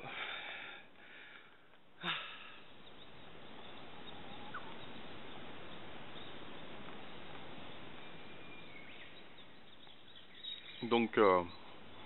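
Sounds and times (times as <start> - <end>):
breath: 0.0 - 2.6
steady low hiss: 0.0 - 12.0.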